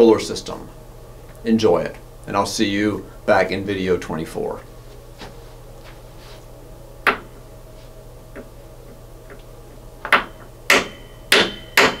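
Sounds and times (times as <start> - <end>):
faint low hum: 0.0 - 11.9
footsteps on hard floor: 4.8 - 6.5.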